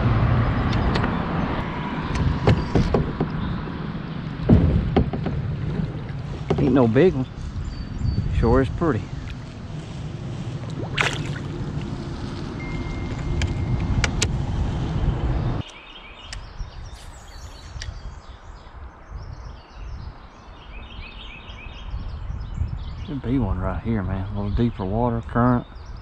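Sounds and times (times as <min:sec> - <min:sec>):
wind noise on microphone: 0:00.0 - 0:15.6, 0:16.2 - 0:26.0
birds singing: 0:00.4 - 0:11.7, 0:15.0 - 0:26.0
running water: 0:08.7 - 0:13.1
fish splashing into water: 0:10.5 - 0:12.0.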